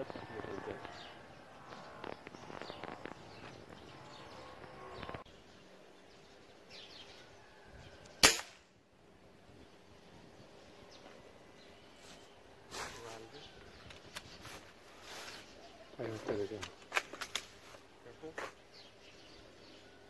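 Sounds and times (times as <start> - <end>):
air rifle shot: 8.2 - 8.6.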